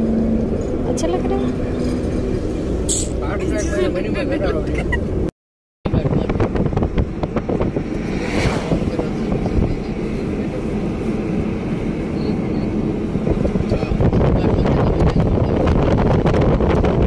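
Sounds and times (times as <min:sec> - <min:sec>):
vehicle road noise rumble: 0:00.0 - 0:05.3, 0:05.9 - 0:17.0
wind buffeting microphone: 0:05.9 - 0:17.0.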